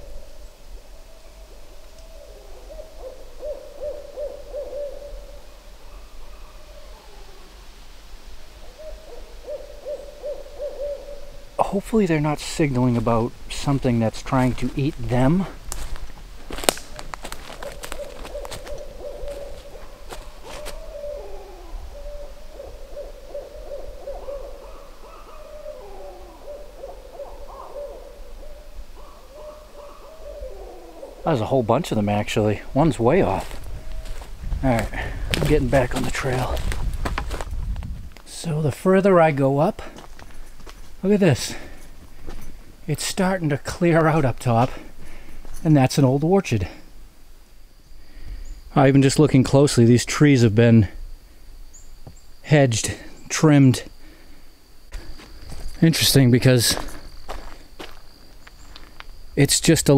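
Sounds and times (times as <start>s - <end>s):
animals hooting: 0.0s - 7.6s, 8.6s - 12.4s, 16.9s - 36.8s
rustling: 14.4s - 21.0s, 33.2s - 38.3s.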